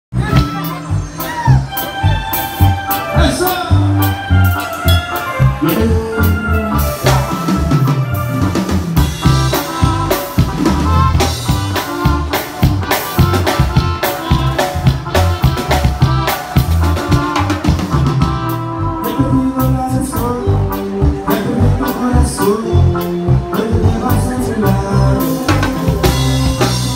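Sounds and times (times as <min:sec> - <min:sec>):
live band music through pa: 0:00.1 - 0:26.9.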